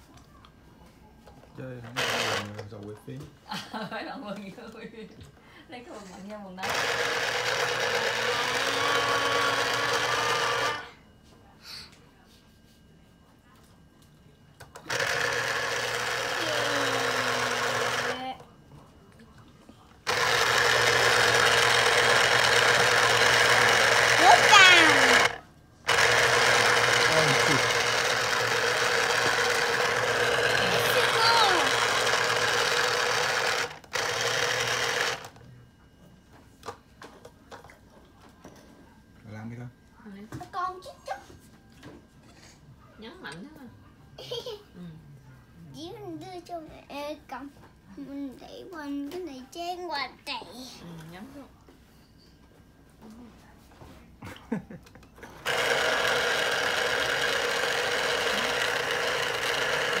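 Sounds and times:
electric juicer motor running: 1.9s - 3.0s, 6.6s - 11.0s, 14.8s - 18.4s, 20.0s - 35.4s, 55.2s - 60.0s.

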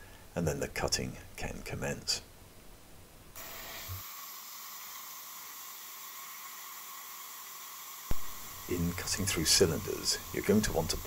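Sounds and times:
laser engraver hissing: 3.4s - 11.0s.

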